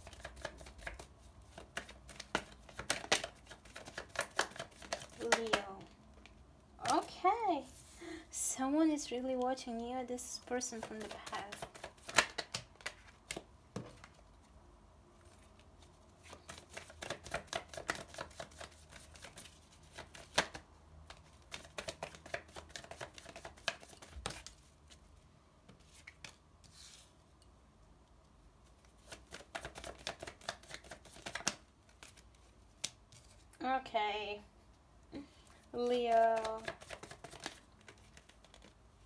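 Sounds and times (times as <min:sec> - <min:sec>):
cards being shuffled: 0:00.0 - 0:07.1, 0:10.6 - 0:14.3, 0:15.2 - 0:25.1, 0:25.7 - 0:27.2, 0:28.7 - 0:33.6, 0:35.5 - 0:38.8.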